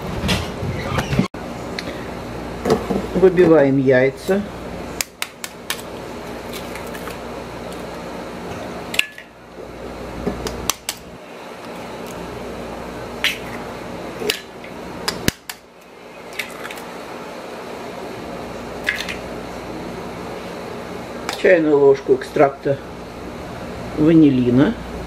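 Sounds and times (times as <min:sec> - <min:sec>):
steady low hum: 0:00.0 - 0:25.0
eggs cracked on metal bowl: 0:05.0 - 0:07.9, 0:10.4 - 0:12.2, 0:13.2 - 0:13.6, 0:18.8 - 0:19.2.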